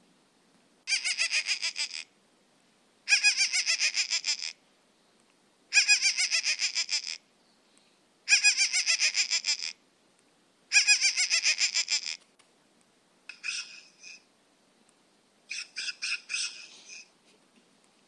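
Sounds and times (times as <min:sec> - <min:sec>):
bird calling fast repeated notes: 0:00.9 - 0:02.1, 0:03.1 - 0:04.6, 0:05.7 - 0:07.2, 0:08.3 - 0:09.8, 0:10.7 - 0:12.2, 0:13.3 - 0:14.2, 0:15.5 - 0:17.1
rough bird calls: 0:13.3 - 0:14.3, 0:15.5 - 0:17.1.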